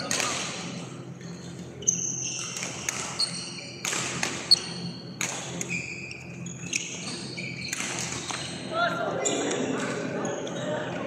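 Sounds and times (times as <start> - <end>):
racket hitting shuttlecock: 0.0 - 0.6, 3.8 - 5.7
shoes squeaking on floor: 1.3 - 3.8, 4.4 - 9.6.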